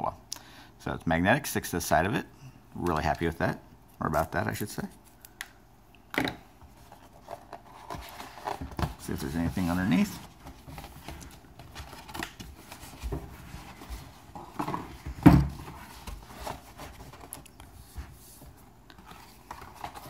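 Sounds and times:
cardboard packaging handled: 0:06.8 - 0:20.0.

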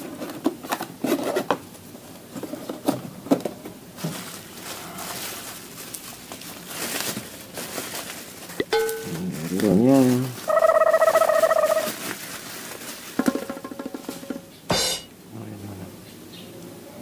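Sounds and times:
cardboard box and paper rustling: 0:04.0 - 0:10.5, 0:11.3 - 0:13.3.

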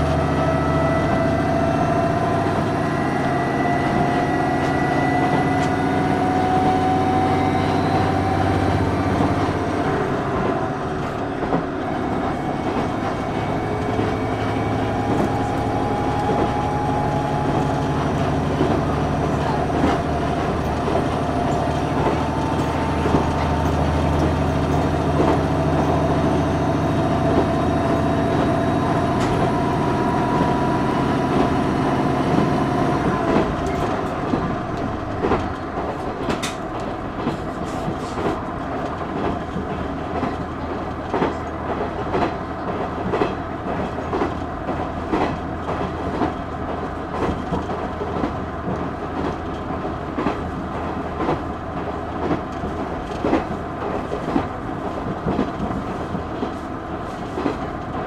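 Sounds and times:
diesel engine droning: 0:00.0 - 0:39.0
clickety-clack of rail joints: 0:00.0 - 0:58.0
wheel-on-rail noise: 0:00.0 - 0:58.0.

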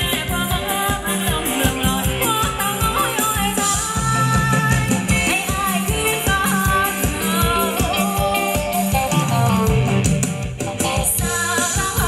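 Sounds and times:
live dance band playing: 0:00.0 - 0:12.0
steady drum beat: 0:00.0 - 0:12.0.

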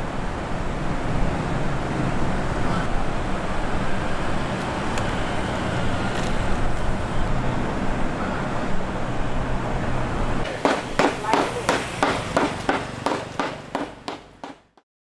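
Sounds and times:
sharp knocks: 0:10.5 - 0:14.8.

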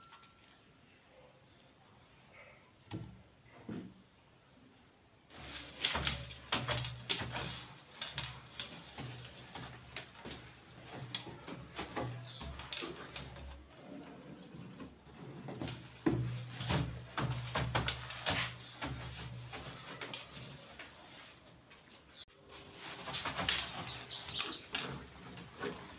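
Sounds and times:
sponge scrubbing glass: 0:05.3 - 0:21.6, 0:22.4 - 0:25.9.

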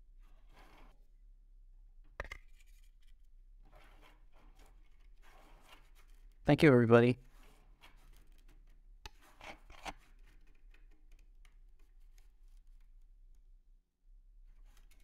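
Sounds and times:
brief plastic scrapes: 0:03.7 - 0:06.4, 0:07.2 - 0:10.8.

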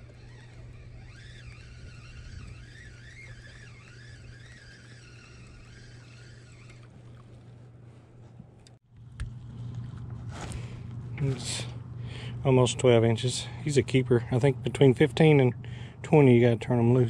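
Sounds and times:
fishing reel whining: 0:00.0 - 0:07.7
steady low hum: 0:00.0 - 0:17.0.

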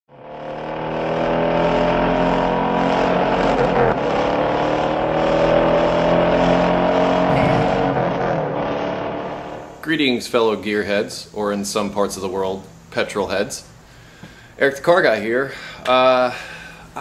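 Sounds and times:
car engine revving high: 0:00.1 - 0:09.8.

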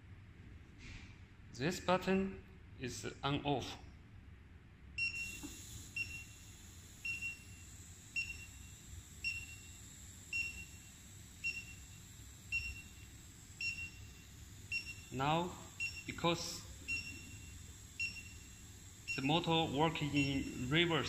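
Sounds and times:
short high beeps: 0:05.0 - 0:07.6, 0:12.5 - 0:21.0.

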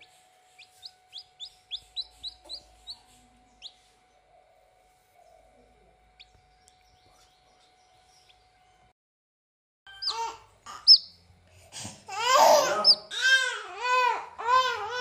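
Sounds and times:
chick peeping: 0:00.0 - 0:08.6, 0:09.9 - 0:11.2, 0:12.7 - 0:13.1.

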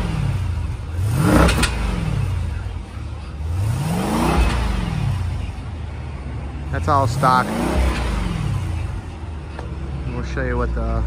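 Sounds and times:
car engine revving: 0:00.0 - 0:11.0.

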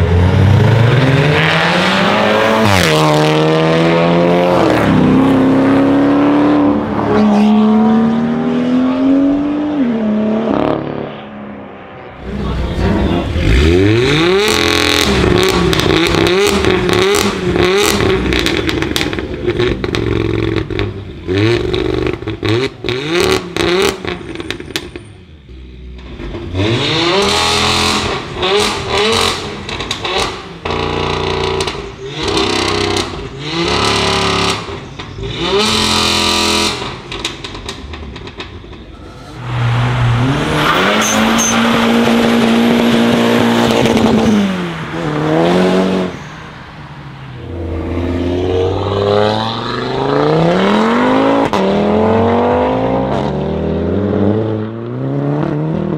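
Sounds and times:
car engines revving: 0:00.0 - 0:55.9
exhaust pops and crackles: 0:14.5 - 0:23.0, 0:28.0 - 0:38.9.

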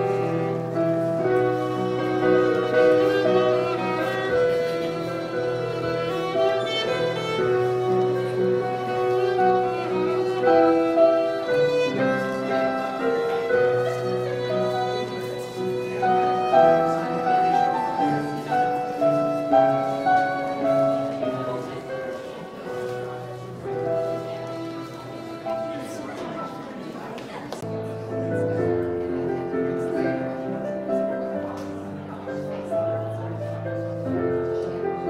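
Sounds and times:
fiddle dance tune: 0:00.0 - 0:26.5.

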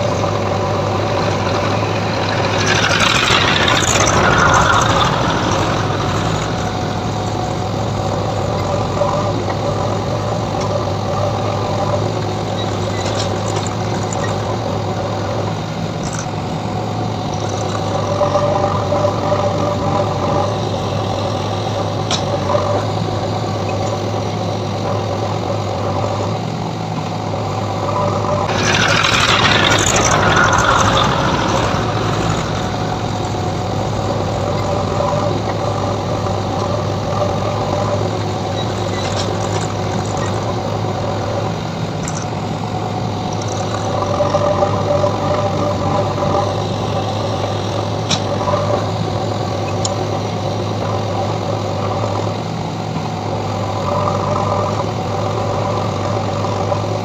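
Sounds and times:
rushing scraping noise: 0:00.0 - 0:09.7, 0:28.4 - 0:40.5
diesel engine running: 0:00.0 - 0:57.0.

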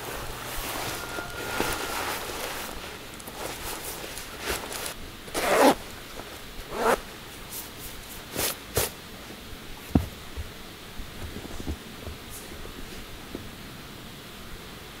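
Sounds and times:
jacket fabric swishing: 0:00.0 - 0:05.8
zipper rasping: 0:00.7 - 0:05.8, 0:06.7 - 0:07.0.

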